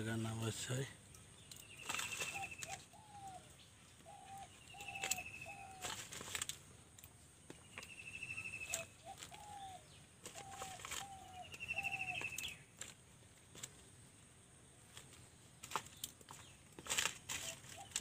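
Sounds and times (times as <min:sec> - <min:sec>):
coconut husk clicks and rustles: 0:00.0 - 0:18.0
bird high trill: 0:04.1 - 0:05.9, 0:10.4 - 0:12.6.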